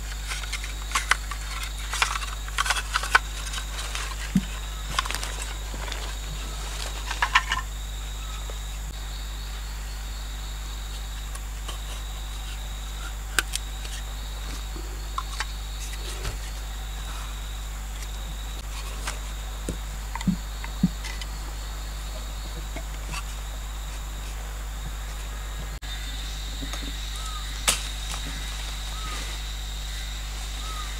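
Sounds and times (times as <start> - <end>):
crickets droning: 0.0 - 30.9
stakes tapping into earth: 27.6 - 28.3.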